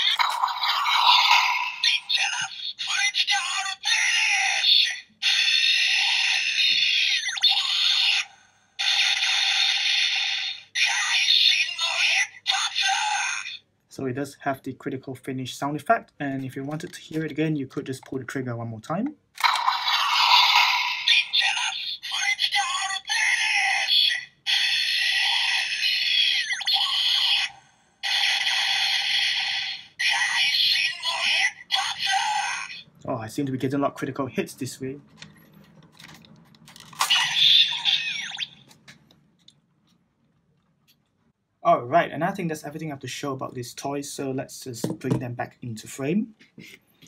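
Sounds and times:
tinny electronic toy sound effect: 0.0s - 13.6s, 19.4s - 32.9s, 36.9s - 38.8s.

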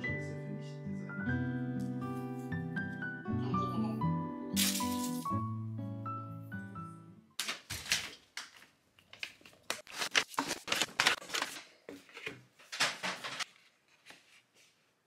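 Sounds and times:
paper bag rustling: 9.2s - 14.5s.

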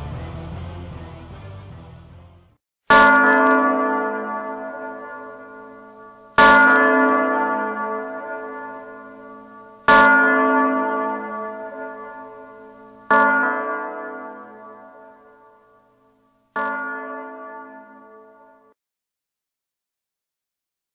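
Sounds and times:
bell tolling: 2.9s - 18.8s.

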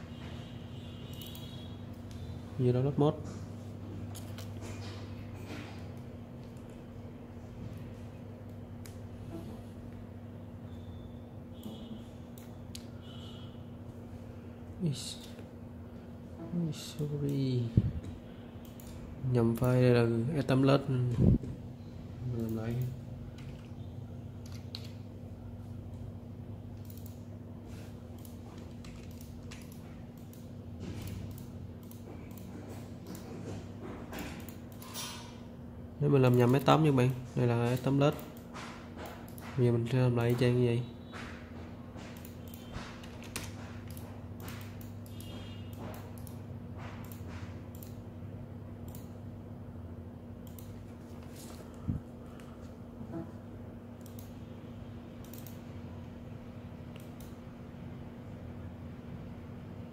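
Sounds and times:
steady low hum: 0.0s - 59.9s
computer mouse clicks: 1.1s - 2.3s, 18.0s - 19.8s, 24.4s - 25.0s, 26.8s - 27.3s, 28.1s - 33.3s, 34.2s - 35.0s, 42.2s - 46.4s, 47.0s - 48.0s, 48.8s - 49.2s, 50.4s - 51.6s, 54.0s - 54.4s, 55.2s - 55.7s, 56.9s - 57.4s.

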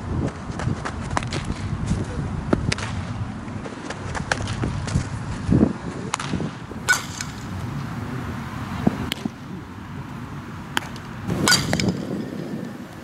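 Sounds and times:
wind rumbling on microphone: 0.0s - 13.0s
softball hitting bat or glove: 6.1s - 8.0s, 8.8s - 9.6s, 10.6s - 12.7s.

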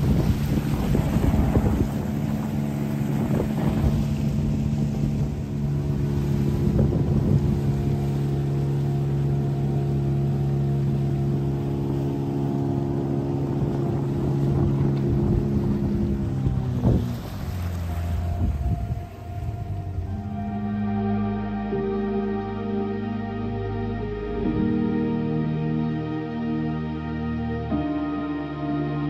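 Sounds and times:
wind gusts on microphone: 0.0s - 9.1s, 12.5s - 20.7s
outboard motor running: 0.0s - 29.0s.

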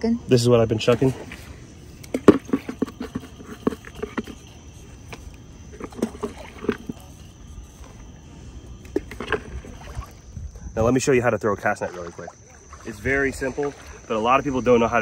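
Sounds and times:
light splashes in water: 0.8s - 10.4s, 11.0s - 14.9s
bait paste squelches: 11.6s - 14.2s.

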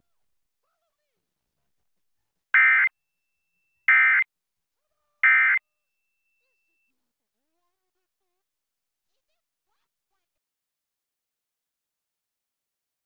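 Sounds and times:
screechy digital data tones: 3.9s - 4.2s, 5.2s - 5.6s.

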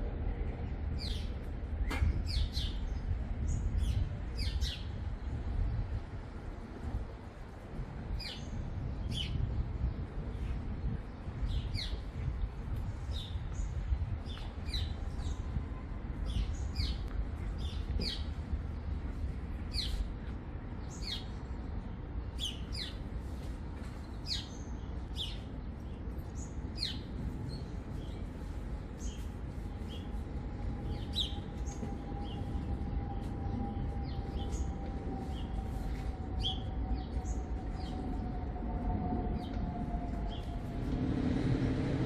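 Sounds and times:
low rumble: 30.0s - 42.0s.

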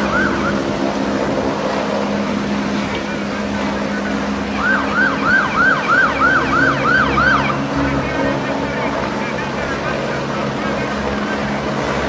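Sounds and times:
electronic siren yelping: 0.0s - 0.8s, 3.6s - 11.6s
steady engine hum: 0.0s - 12.0s.

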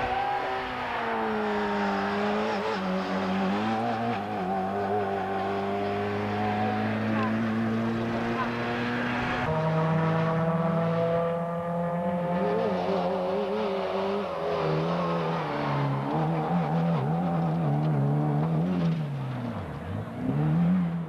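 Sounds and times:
rally car engine at high revs: 0.0s - 21.0s.

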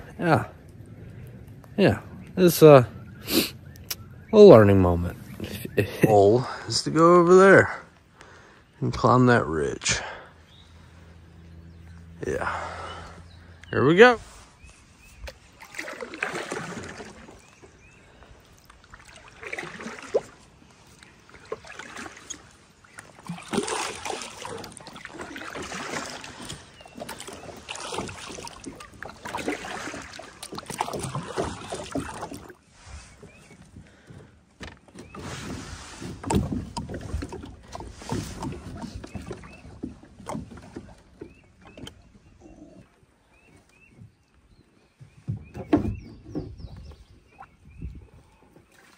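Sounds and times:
water swishing along hull: 0.0s - 48.9s
paddle strokes splashing: 10.1s - 42.4s.

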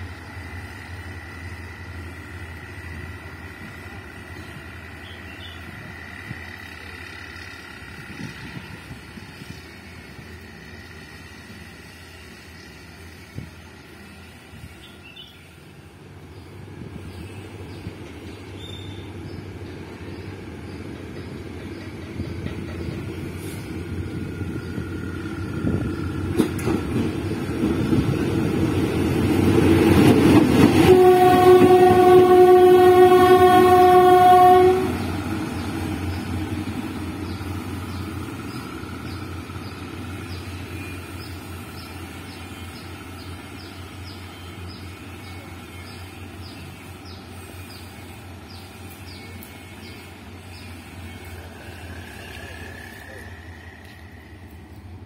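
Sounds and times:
train rumbling past: 0.0s - 55.0s
train horn blast: 30.5s - 35.3s.

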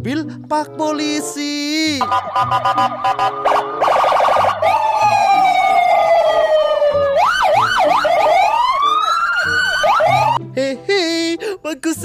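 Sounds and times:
electronic police siren wailing: 2.0s - 10.4s
faster warbling siren tone: 2.0s - 10.4s.

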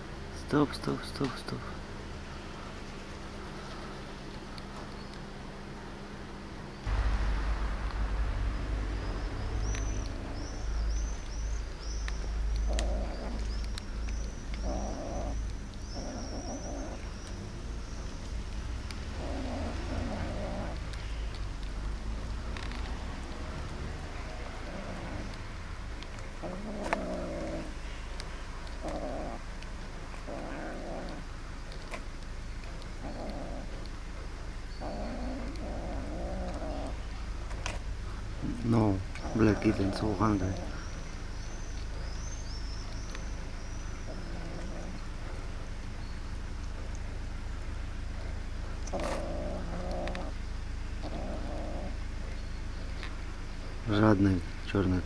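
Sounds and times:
steady low rumble: 0.0s - 54.8s
kittens chewing food: 9.7s - 53.2s
faint eating clicks: 12.0s - 37.9s, 48.7s - 50.4s
kitten growling: 12.2s - 13.8s, 14.6s - 17.8s, 19.1s - 21.0s, 23.7s - 25.6s, 26.4s - 27.8s, 28.6s - 31.3s, 32.9s - 34.0s, 34.8s - 37.8s, 44.0s - 45.4s, 48.2s - 50.4s, 51.0s - 52.0s.

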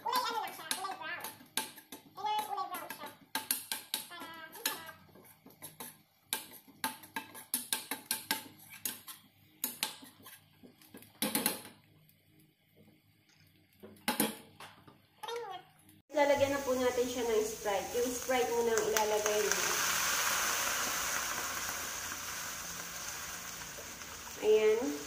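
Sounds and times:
metal spoon scraping a wok: 4.5s - 10.4s.

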